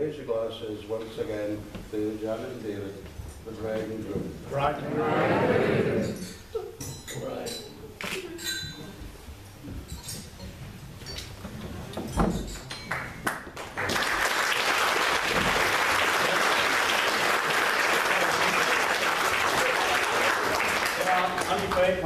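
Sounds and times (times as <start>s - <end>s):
people applauding: 12.9s - 22.0s.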